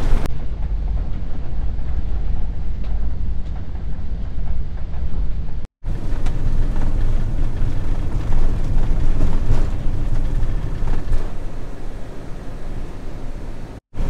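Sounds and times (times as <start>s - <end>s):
road and wind noise of van: 0.0s - 14.0s.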